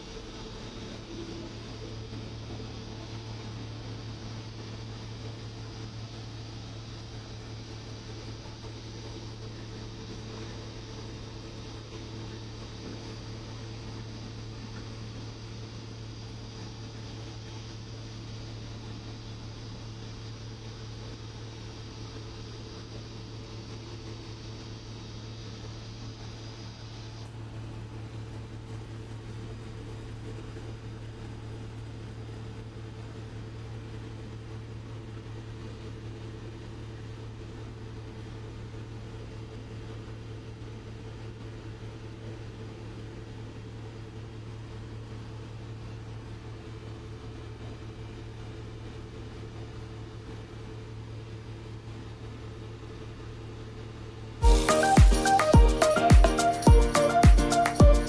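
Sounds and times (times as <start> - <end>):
ship machinery humming: 0.0 - 37.8, 54.4 - 58.0.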